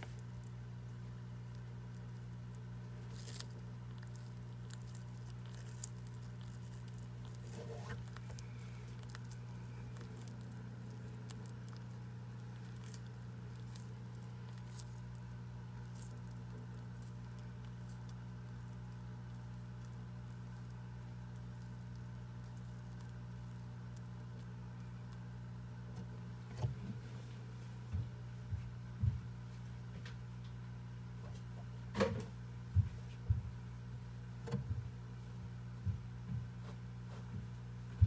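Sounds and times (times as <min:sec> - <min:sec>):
tortoise chewing leaves: 0:00.0 - 0:27.1
low hum: 0:00.0 - 0:38.0.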